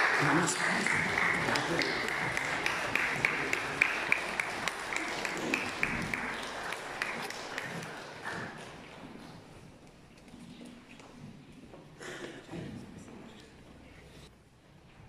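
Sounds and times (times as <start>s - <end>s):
congregation applauding: 0.0s - 9.4s.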